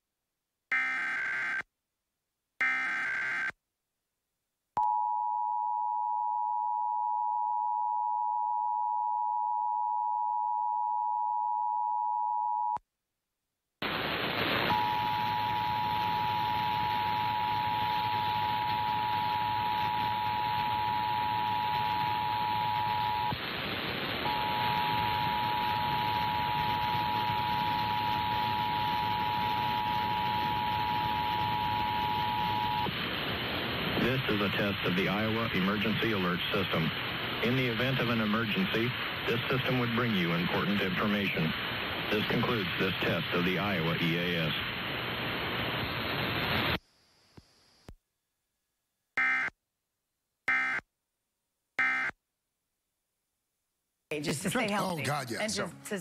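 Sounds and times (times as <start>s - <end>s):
loud steady hiss: 13.8s - 47.8s.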